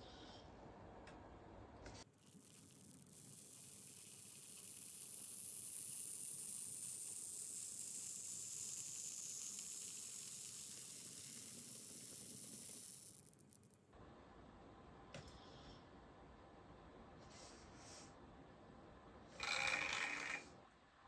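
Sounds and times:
hot wire sizzling through foam: 0:02.1 - 0:13.8.

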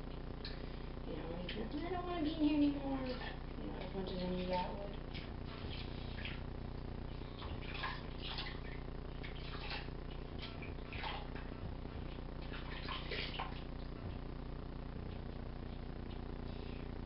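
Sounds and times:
steady low hum: 0:00.0 - 0:17.0
water splashing in a sink: 0:00.4 - 0:14.0.

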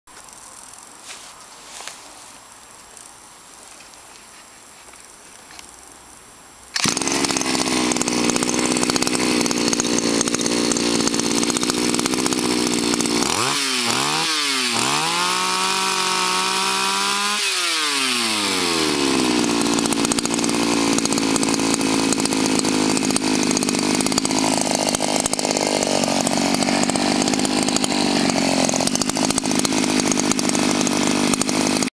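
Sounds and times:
small two-stroke engine idling: 0:06.8 - 0:31.9.

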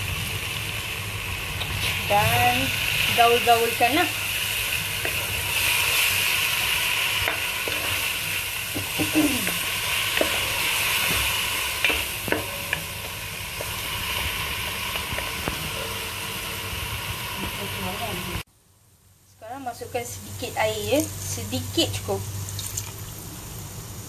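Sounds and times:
spice paste sizzling in oil: 0:00.0 - 0:18.4.

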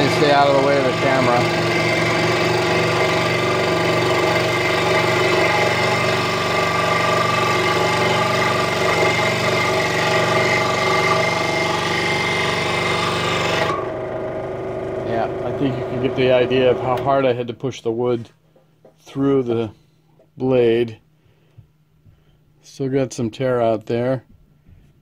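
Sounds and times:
saw motor hum: 0:00.0 - 0:17.3.

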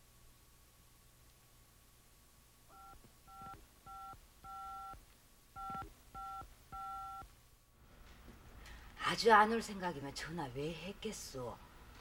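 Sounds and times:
phone keypad beeps: 0:02.7 - 0:05.0, 0:05.6 - 0:07.3.

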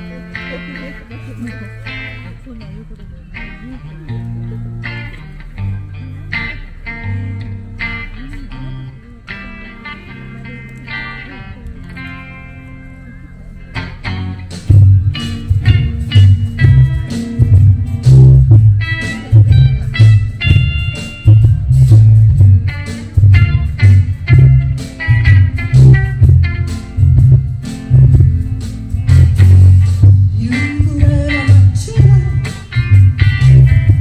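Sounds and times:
guitar melody: 0:00.0 - 0:34.0
live band playing: 0:00.0 - 0:34.0
pulsing bass line: 0:11.6 - 0:34.0
drum beats: 0:13.8 - 0:34.0.

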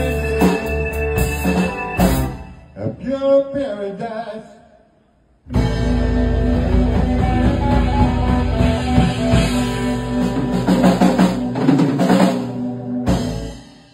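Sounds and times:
bass guitar: 0:00.0 - 0:02.6, 0:05.5 - 0:13.9
drum kit: 0:00.0 - 0:02.6, 0:05.5 - 0:13.9
electric guitar: 0:00.0 - 0:02.6, 0:05.5 - 0:13.9
keyboard: 0:00.0 - 0:03.0, 0:05.5 - 0:13.9.

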